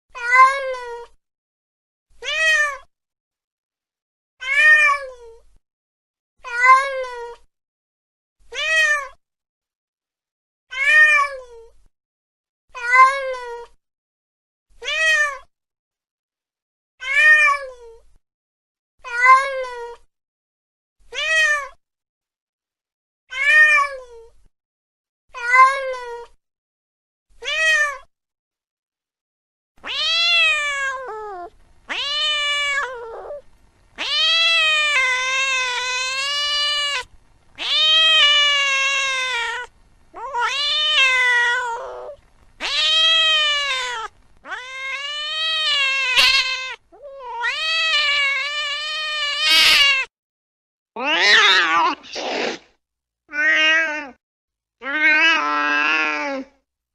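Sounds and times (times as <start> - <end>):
cat meowing: 0.2 - 1.0, 2.2 - 2.9, 4.4 - 5.2, 8.5 - 9.2, 10.7 - 11.5, 21.1 - 21.8, 23.3 - 24.0, 27.4 - 28.1, 29.8 - 33.4, 34.0 - 50.1, 51.0 - 52.6, 53.3 - 54.2, 54.8 - 56.5
cat yowling: 29.8 - 33.4, 34.0 - 50.1, 51.0 - 52.6, 53.3 - 54.2, 54.8 - 56.5.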